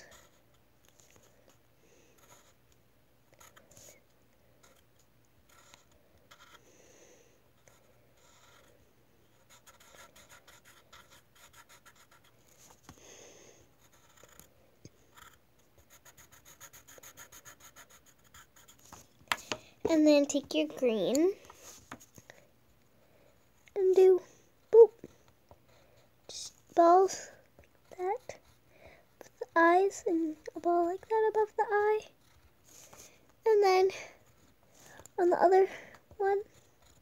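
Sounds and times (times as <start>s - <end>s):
pencil scratching on paper: 0.0s - 0.6s, 2.2s - 2.6s, 4.6s - 4.8s, 5.5s - 6.6s, 7.6s - 12.4s, 13.8s - 14.5s, 15.1s - 19.0s, 27.8s - 28.6s, 36.4s - 37.0s.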